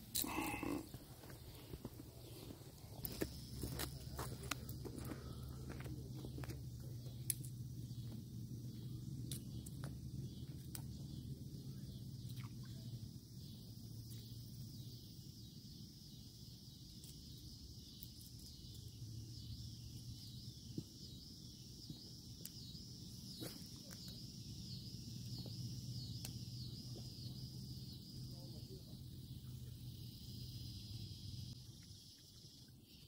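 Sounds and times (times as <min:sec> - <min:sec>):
low steady hum: 0:00.0 - 0:16.7
high insect chorus: 0:00.0 - 0:33.0.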